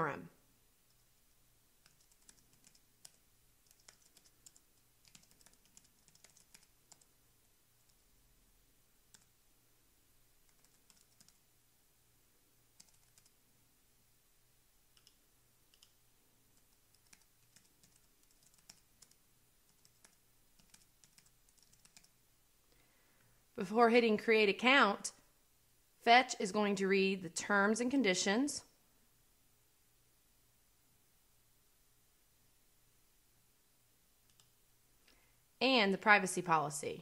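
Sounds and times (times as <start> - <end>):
faint keyboard typing: 0.8 - 7.2, 7.8 - 8.1, 9.0 - 9.4, 10.4 - 11.5, 12.7 - 13.5, 14.9 - 22.2, 34.2 - 35.3.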